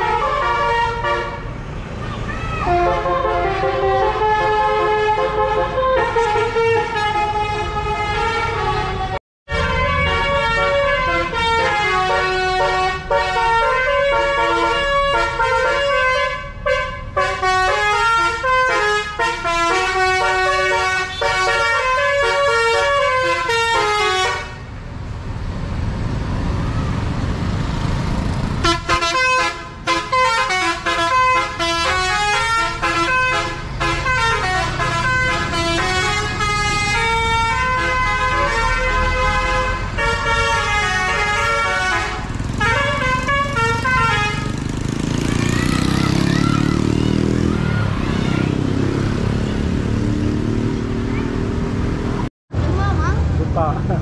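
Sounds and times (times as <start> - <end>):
musical air horn playing a tune: 0.0 - 1.4, 2.6 - 24.6, 28.6 - 44.5
bus engine rumbling: 0.0 - 54.0.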